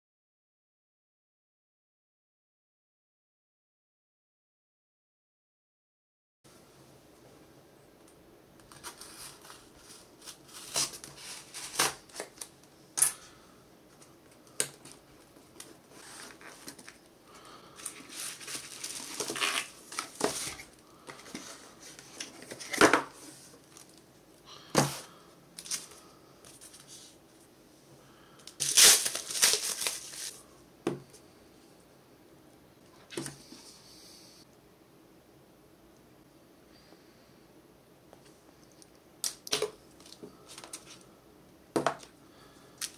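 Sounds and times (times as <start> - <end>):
bubble wrap crinkling and tearing: 8.7 - 12.5, 17.8 - 20.8, 28.4 - 30.4
tape peeled from cardboard box: 8.8 - 12.4, 18.0 - 20.7, 28.6 - 30.3.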